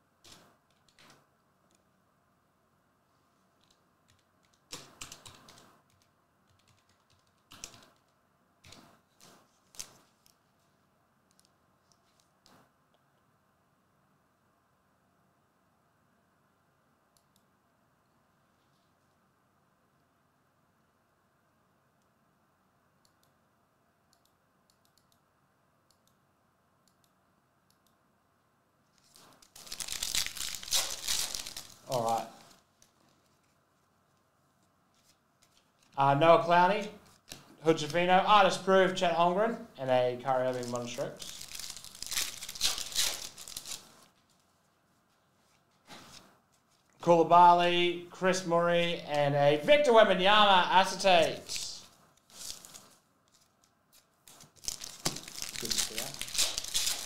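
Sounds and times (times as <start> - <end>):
foil packs crinkling: 29.0 - 32.6, 40.5 - 44.5, 52.3 - 53.5, 54.3 - 57.0.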